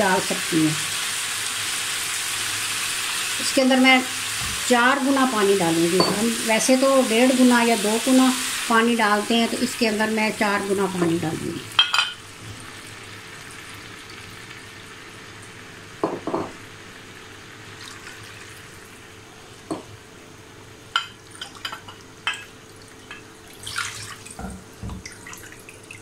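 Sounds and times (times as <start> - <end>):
frying pan hiss: 0.0 - 25.9
dishes clinking and knocking: 6.0 - 6.3, 11.8 - 12.2, 16.0 - 16.6, 19.7 - 19.9, 21.0 - 22.5, 24.4 - 25.1
water pouring: 17.8 - 18.6, 22.8 - 26.0.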